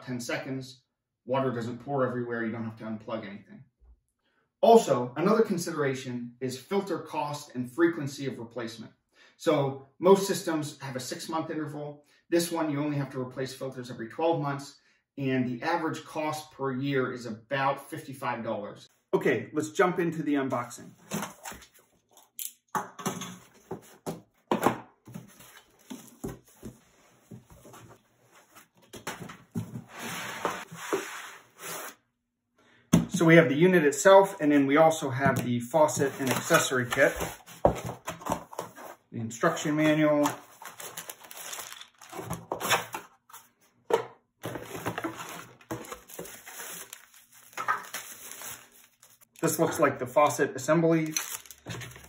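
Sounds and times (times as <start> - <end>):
cardboard rustling and scraping: 23.4 - 32.0, 35.8 - 39.1, 39.7 - 43.7, 44.4 - 49.3, 51.2 - 52.0
plastic bag crinkling: 40.3 - 42.5, 44.6 - 49.5, 51.0 - 52.0.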